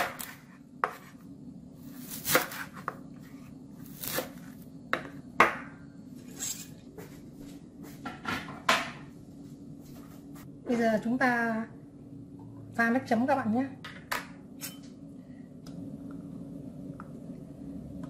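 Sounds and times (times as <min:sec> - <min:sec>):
knife chopping on wooden board: 0:00.0 - 0:01.1, 0:02.2 - 0:03.0.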